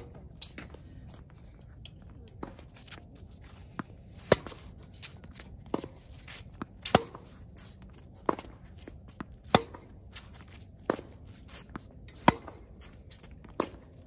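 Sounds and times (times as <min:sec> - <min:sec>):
tennis ball bouncing: 0:03.8 - 0:10.1, 0:10.8 - 0:14.0
tennis racket hitting ball: 0:05.7 - 0:07.4, 0:08.2 - 0:10.0, 0:10.8 - 0:13.8.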